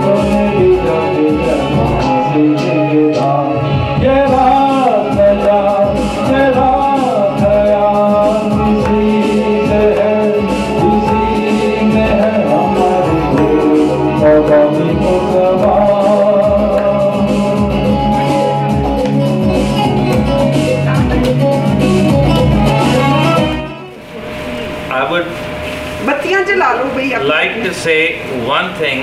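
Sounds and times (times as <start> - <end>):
man singing into microphone: 0.0 - 18.9
guitar backing track with beat: 0.0 - 24.2.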